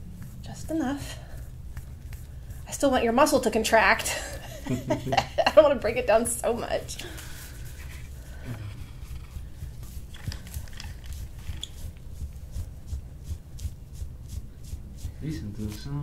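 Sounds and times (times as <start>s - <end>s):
metal tool scraping over skin: 7.1s - 12.6s.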